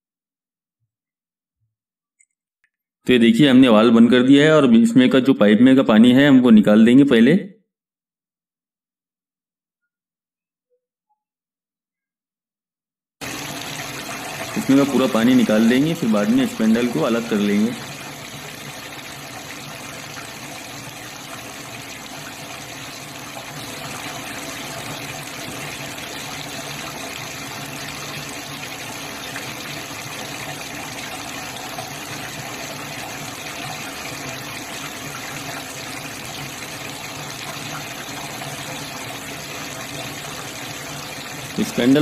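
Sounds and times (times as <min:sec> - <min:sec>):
tap water pouring into steel sink: 0:13.2 - 0:42.0.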